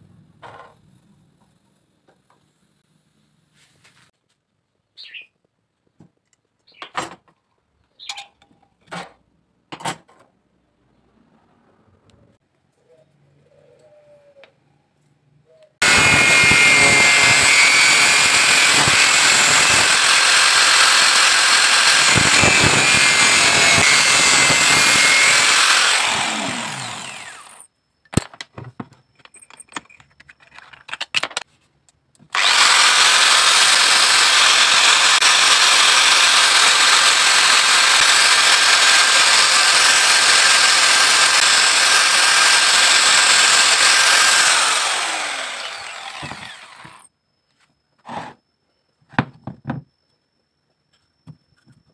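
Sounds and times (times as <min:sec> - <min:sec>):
angle grinder running: 0:15.8 - 0:27.7, 0:32.3 - 0:47.1.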